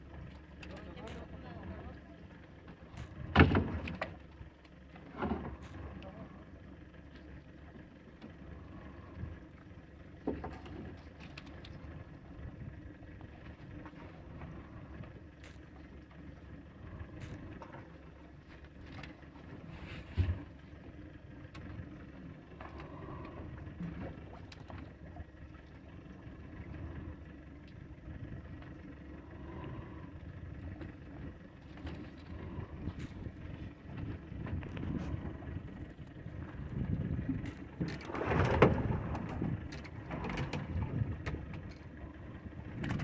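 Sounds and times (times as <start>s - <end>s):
water around boat: 0.0s - 43.0s
wind: 0.0s - 43.0s.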